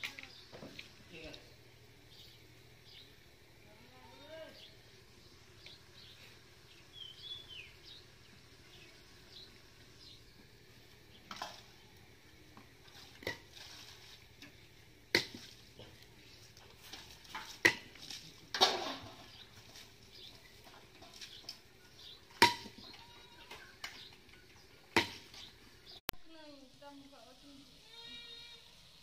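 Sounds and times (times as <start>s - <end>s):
bird chirping: 2.0s - 12.0s
metal utensils clanking: 16.6s - 25.5s.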